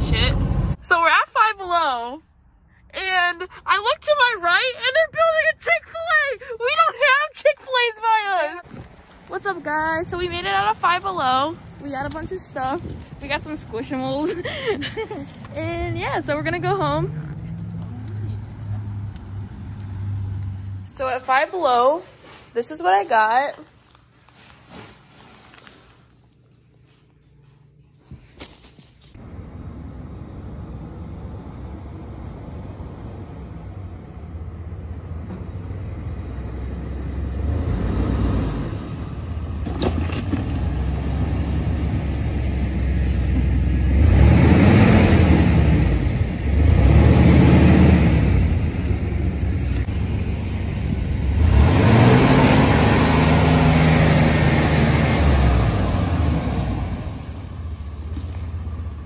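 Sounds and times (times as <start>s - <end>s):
pickup engine revving: 15.6s - 20.8s, 29.2s - 59.0s.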